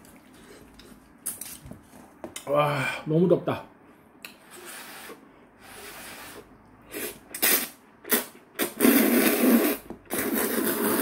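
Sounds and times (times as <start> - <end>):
noodles being slurped: 4.4 - 11.0.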